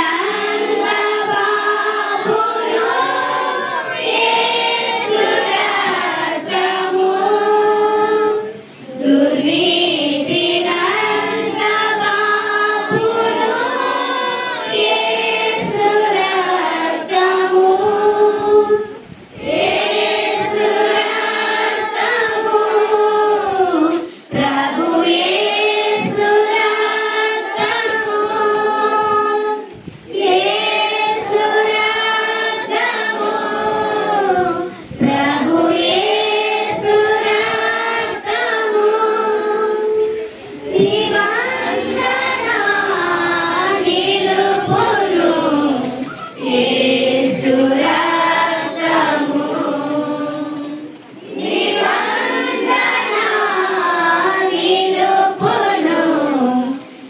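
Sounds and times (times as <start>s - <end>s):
women singing in unison: 0.0s - 57.0s.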